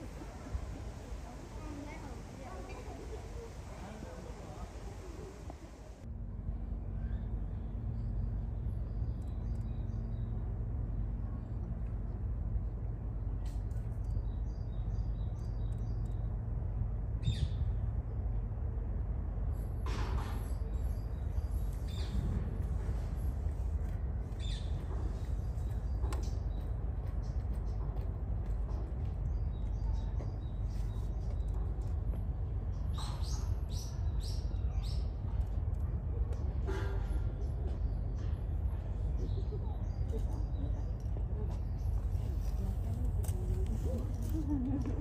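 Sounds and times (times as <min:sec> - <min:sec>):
low outdoor rumble: 0:00.0 - 0:45.0
small birds chirping: 0:07.0 - 0:10.6, 0:13.7 - 0:16.4, 0:20.4 - 0:44.7.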